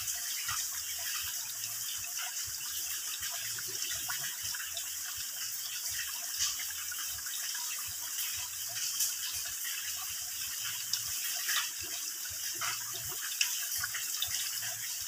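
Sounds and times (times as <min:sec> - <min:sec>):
sharp water drips: 0:00.0 - 0:15.0
water trickling into a pool: 0:00.0 - 0:15.0.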